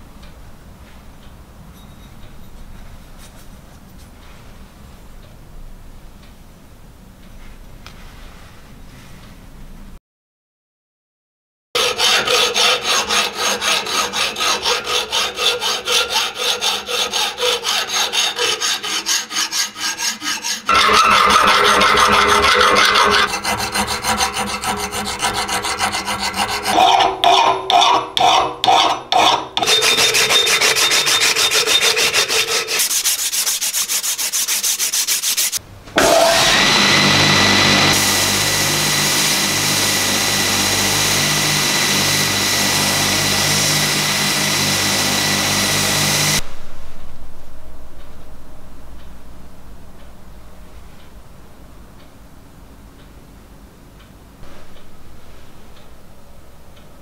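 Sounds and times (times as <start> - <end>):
belt grinder whining: 11.8 - 28.8, 29.6 - 33.1, 33.7 - 46.4
hand files rasping on metal: 11.8 - 36.2.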